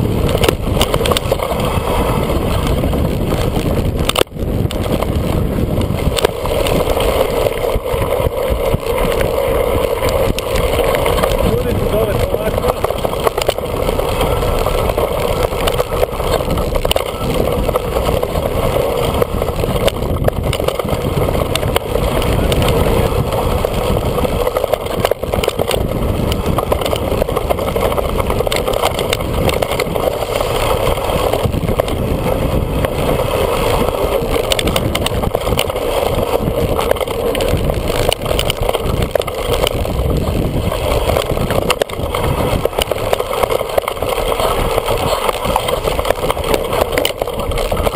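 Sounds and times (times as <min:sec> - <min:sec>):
bike frame and chain clattering: 0:00.0 - 0:47.9
bike tyres running over stone: 0:00.0 - 0:47.9
wind noise on microphone: 0:00.0 - 0:47.9.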